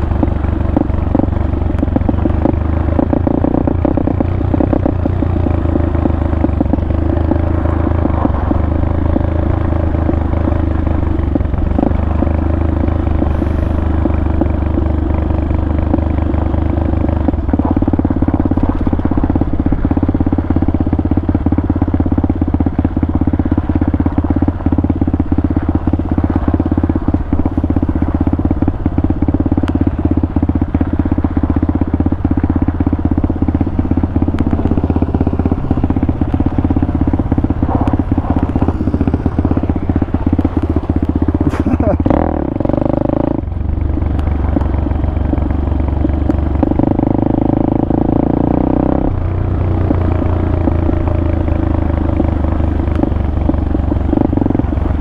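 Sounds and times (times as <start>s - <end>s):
motorbike engine running: 0.0s - 55.0s.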